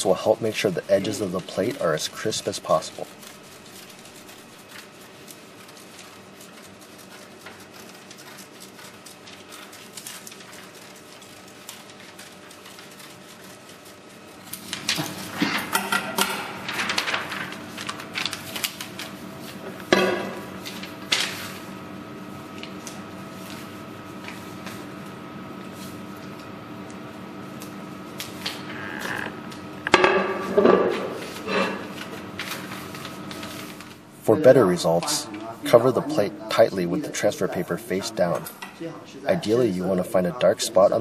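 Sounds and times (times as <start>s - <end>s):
paper rustling and crackling: 0.2s - 26.5s, 31.0s - 34.0s
scissors snipping paper: 1.1s - 15.3s.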